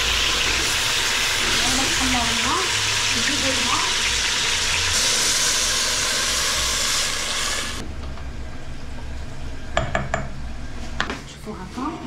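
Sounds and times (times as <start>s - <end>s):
water pouring into pot: 0.0s - 7.8s.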